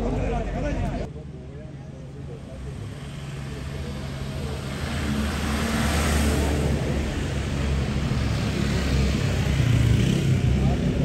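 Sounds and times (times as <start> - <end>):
car engine and tyres passing: 2.4 - 11.0.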